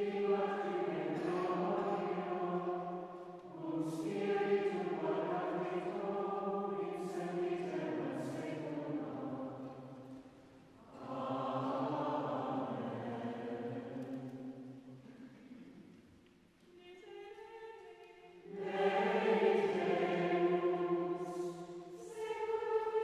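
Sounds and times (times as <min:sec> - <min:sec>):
choir chanting plainchant: 0:00.0 - 0:15.8, 0:17.0 - 0:23.0.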